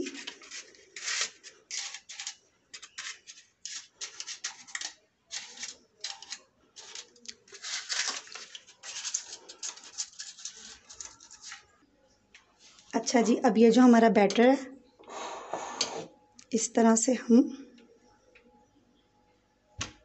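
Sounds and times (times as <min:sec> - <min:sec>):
paper liners crinkling: 0:00.0 - 0:11.7.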